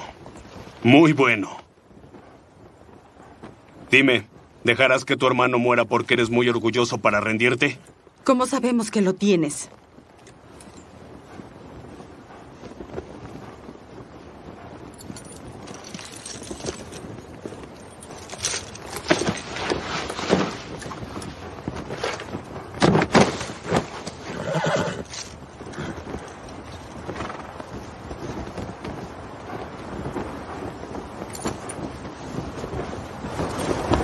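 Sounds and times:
hooves stepping: 9.3 - 34.0
horses whinnying: 23.8 - 26.1.

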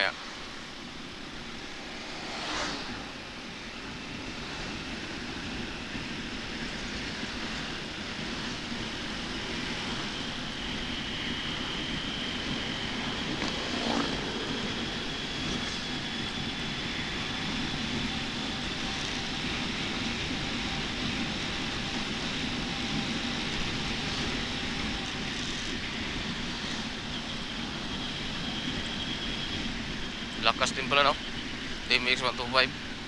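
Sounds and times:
wind noise: 0.0 - 33.0
motorcycle engine running: 0.8 - 26.9.

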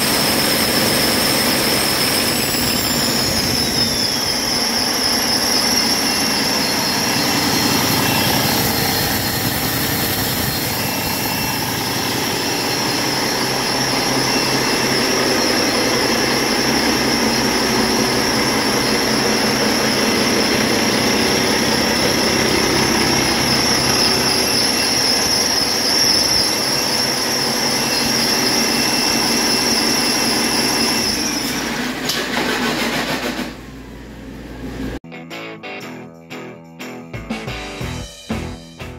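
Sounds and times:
diesel engine running: 0.0 - 29.6
high whine: 0.0 - 31.6.

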